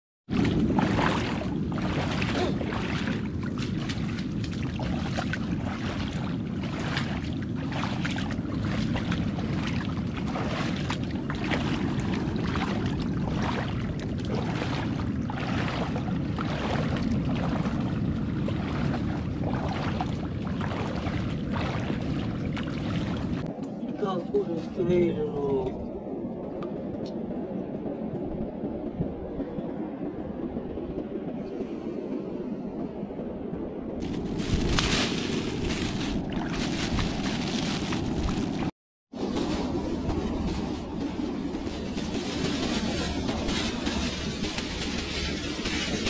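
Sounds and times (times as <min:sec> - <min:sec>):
feet wading through shallow water: 0:00.3 - 0:23.6, 0:34.0 - 0:39.8
wind rumble on microphone: 0:00.3 - 0:46.0.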